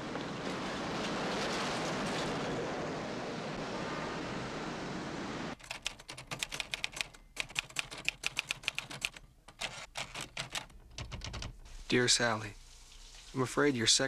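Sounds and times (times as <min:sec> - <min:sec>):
rushing street noise: 0:00.0 - 0:05.6
typewriter keys clicking: 0:05.6 - 0:11.6.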